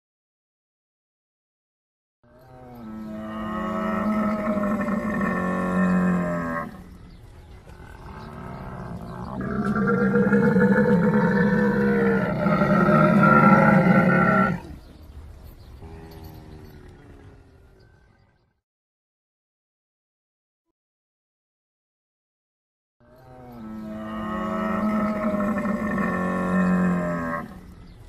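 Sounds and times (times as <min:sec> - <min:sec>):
camel calling: 0:07.6 - 0:14.8, 0:23.8 - 0:27.9.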